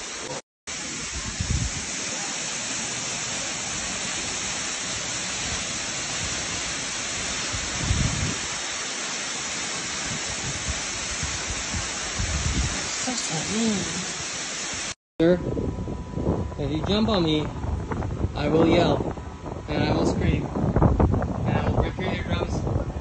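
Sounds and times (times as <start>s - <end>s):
waterfall rushing into pool: 0.0s - 15.0s
low rumbles: 15.2s - 23.0s.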